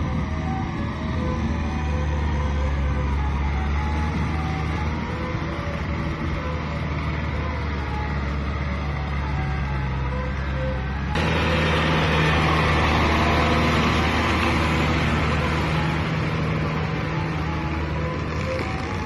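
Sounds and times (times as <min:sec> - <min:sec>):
tractor diesel engine running: 0:00.0 - 0:19.0
rotary tiller churning mud: 0:11.2 - 0:19.0.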